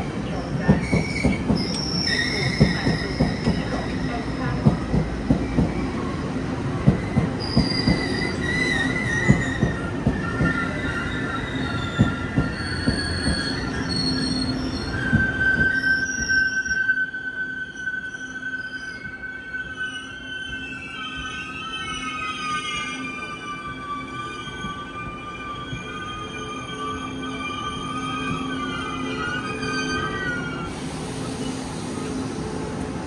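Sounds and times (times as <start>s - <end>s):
high wheel squeals: 0.7s - 4.6s, 5.4s - 32.6s
train wheels clicking over rail joints: 6.8s - 8.3s.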